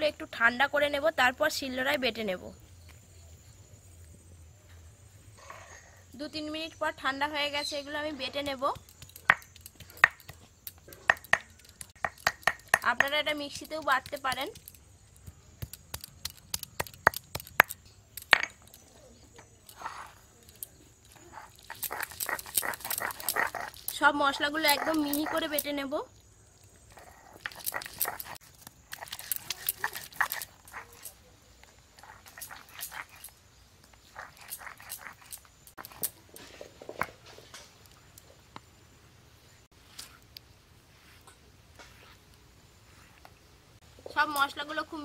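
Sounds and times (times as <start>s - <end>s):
stone knocking and cracking: 8.7s - 13.2s, 13.8s - 18.8s
stone grinding scrapes: 19.7s - 25.6s, 26.9s - 31.2s, 31.9s - 37.1s
grinding stone scraping stone slab: 21.1s - 25.6s.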